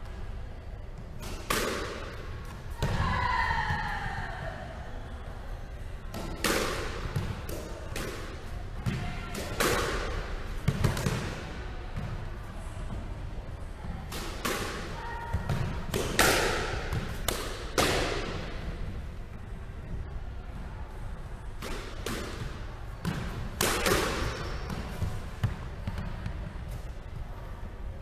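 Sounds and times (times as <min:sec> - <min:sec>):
squash ball hits echoing: 0:01.1 - 0:04.2, 0:06.1 - 0:12.3, 0:14.0 - 0:18.9, 0:21.6 - 0:26.6.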